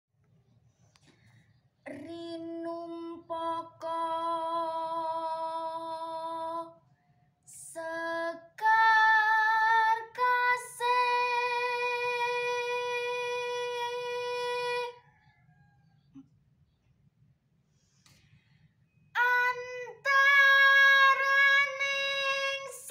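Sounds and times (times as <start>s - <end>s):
woman singing unaccompanied: 1.9s - 6.8s, 7.5s - 15.0s, 19.2s - 22.9s.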